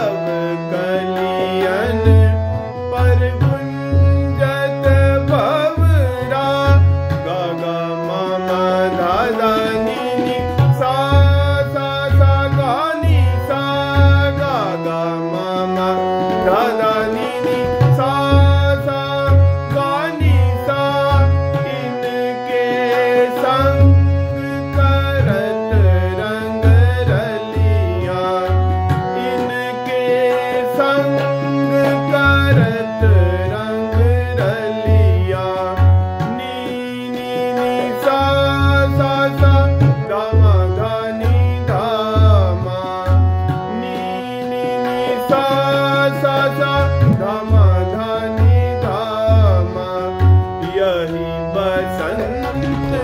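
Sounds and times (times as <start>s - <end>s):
harmonium playing: 0.0s - 53.0s
tabla rhythm: 0.0s - 53.0s.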